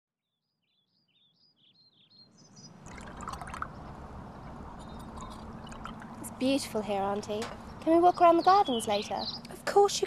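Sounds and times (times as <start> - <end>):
bird chirps: 0.5 - 2.8, 4.7 - 5.9, 7.5 - 9.6
running splashing water: 2.8 - 3.9, 4.6 - 6.5.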